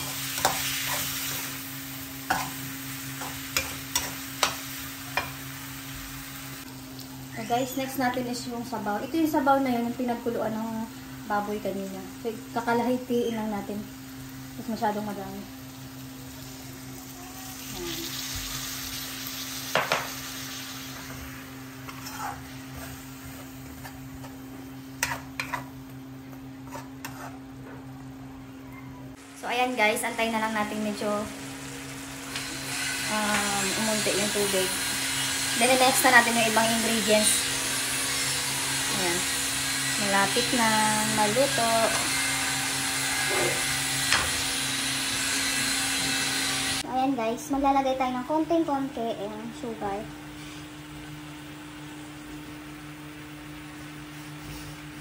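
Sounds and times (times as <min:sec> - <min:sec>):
metal spatula scraping a pan: 0:00.0 - 0:01.6, 0:21.8 - 0:23.1, 0:25.0 - 0:25.8, 0:26.6 - 0:27.5
food sizzling in a wok: 0:00.0 - 0:28.2, 0:29.1 - 0:55.0
metal ladle scraping wok: 0:21.8 - 0:23.0, 0:26.6 - 0:27.4.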